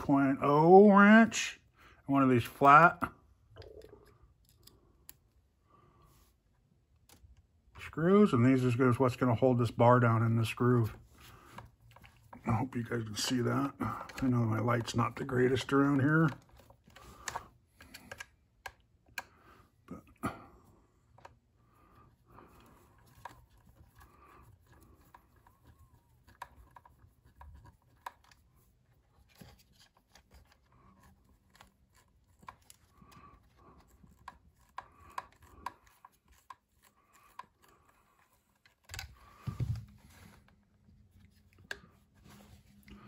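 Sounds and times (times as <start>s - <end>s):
screwdriver clicks and scrapes: 3.8s - 5.2s.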